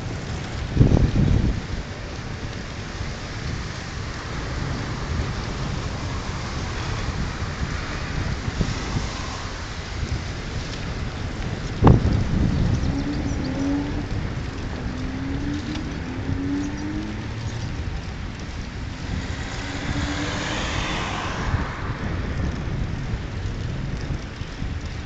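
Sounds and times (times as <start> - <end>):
wind noise on microphone: 0.0 - 25.0
car tyres hissing past: 3.5 - 11.3, 18.6 - 23.2.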